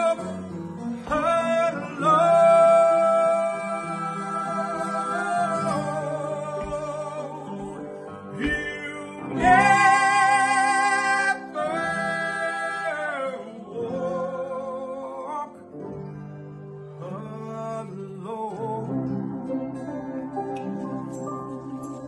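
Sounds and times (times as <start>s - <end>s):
person singing with harmony: 0.0s - 15.7s, 20.6s - 22.0s
acoustic guitar: 0.0s - 22.0s
piano: 0.0s - 22.0s.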